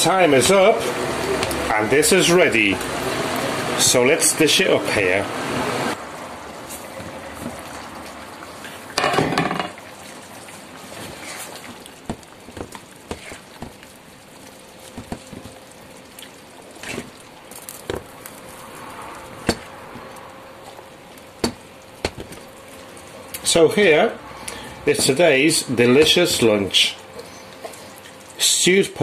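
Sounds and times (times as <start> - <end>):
stew sizzling in a pan: 5.4 - 28.4.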